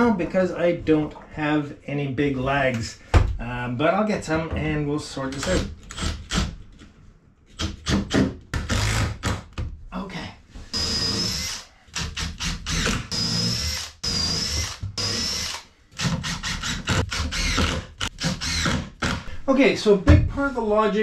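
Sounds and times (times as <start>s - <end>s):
impact driver driving screws into wood: 7.6s - 9.5s, 10.8s - 19.3s.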